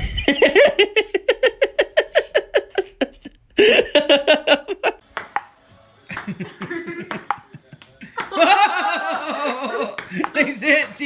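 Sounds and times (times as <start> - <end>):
person laughing hard: 0.0 - 5.0, 8.1 - 10.4
ping-pong ball bouncing on table: 5.1 - 5.6, 6.2 - 8.4, 9.2 - 11.0.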